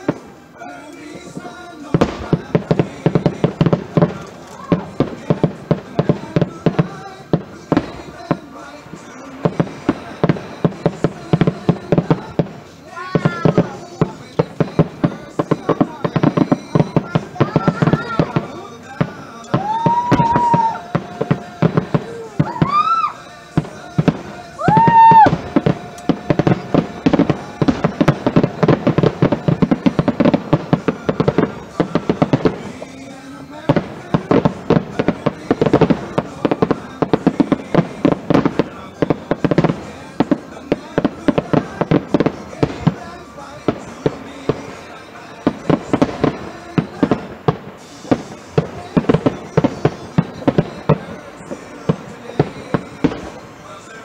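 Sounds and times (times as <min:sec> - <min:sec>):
fireworks bangs and crackles: 0:00.0 - 0:54.0
rising and falling whoop: 0:19.6 - 0:20.9, 0:22.4 - 0:23.2, 0:24.6 - 0:25.4.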